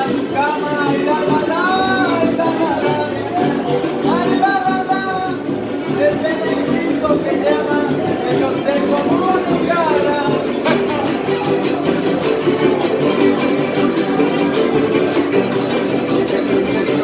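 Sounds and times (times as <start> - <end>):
guitars strumming fast: 0.0 - 17.0.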